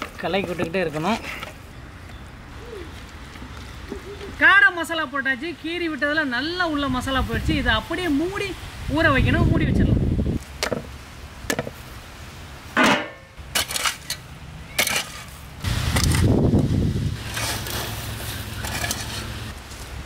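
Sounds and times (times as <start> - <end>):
metallic clank: 12.8 - 14.2
hoe striking and scraping soil: 12.8 - 20.0.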